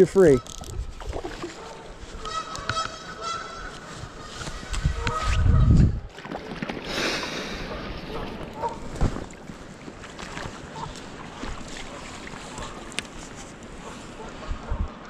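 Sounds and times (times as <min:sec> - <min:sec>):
wind buffeting microphone: 0:03.9 - 0:06.1, 0:13.8 - 0:15.0
creek water rushing: 0:06.1 - 0:14.5.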